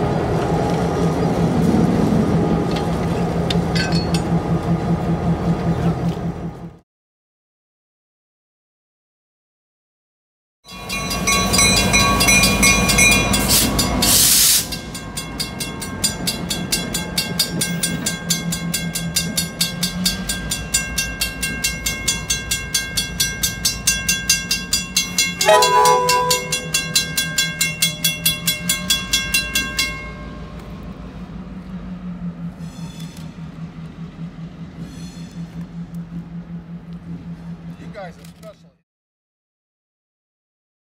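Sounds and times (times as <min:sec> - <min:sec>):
locomotive engine humming: 0:00.0 - 0:06.8, 0:10.7 - 0:38.8
bell ringing quickly: 0:14.7 - 0:30.3
locomotive horn: 0:25.3 - 0:27.0.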